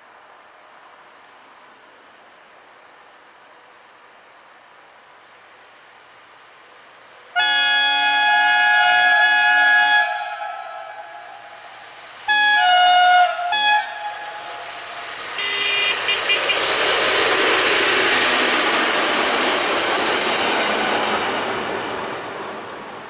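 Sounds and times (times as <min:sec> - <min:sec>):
locomotive horn blast: 0:07.3 - 0:16.8
locomotive engine rush: 0:10.0 - 0:23.0
wheels on rails: 0:13.3 - 0:23.0.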